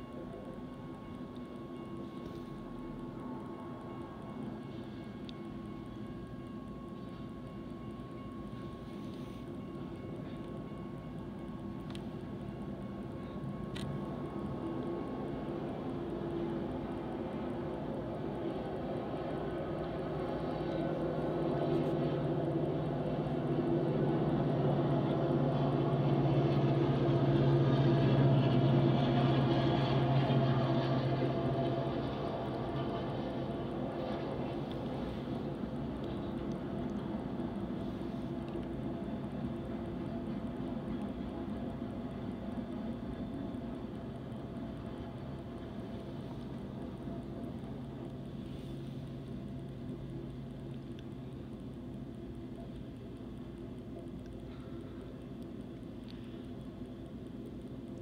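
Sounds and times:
diesel locomotive engines droning: 0:00.0 - 0:58.0
distant train rumble: 0:00.0 - 0:58.0.

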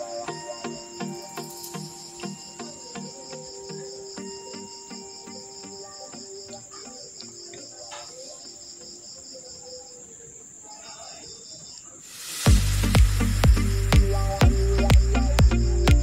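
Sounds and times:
crickets chirping: 0:00.0 - 0:16.0
music with heavy beat: 0:12.5 - 0:16.0.

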